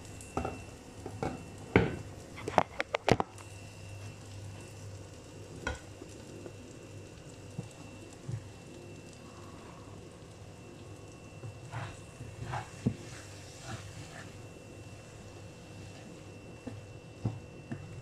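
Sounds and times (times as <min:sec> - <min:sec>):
food sizzling in a pan: 0:00.0 - 0:18.0.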